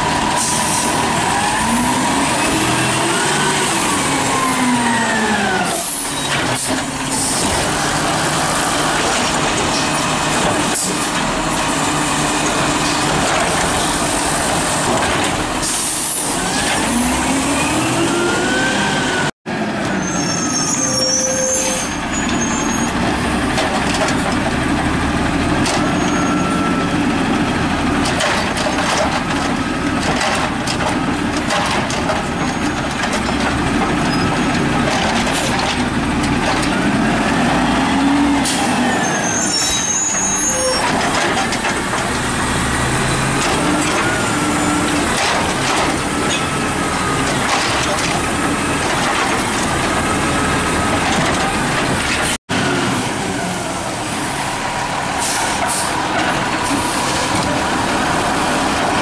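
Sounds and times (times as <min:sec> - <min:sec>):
garbage truck engine running: 0:22.0 - 0:59.0.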